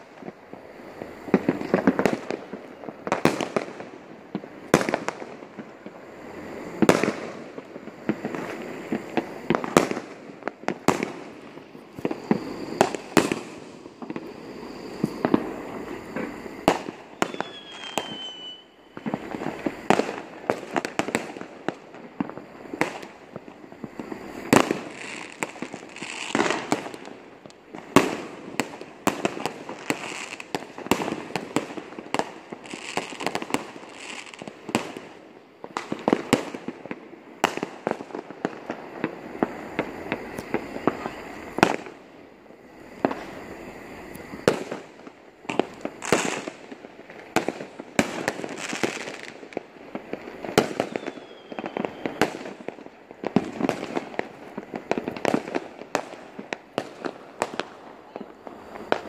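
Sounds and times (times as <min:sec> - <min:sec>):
fireworks bangs and pops: 0:00.0 - 0:42.1, 0:42.8 - 0:59.0
distant firework bursts: 0:00.0 - 0:59.0
falling whistle: 0:17.0 - 0:19.2, 0:50.8 - 0:52.3.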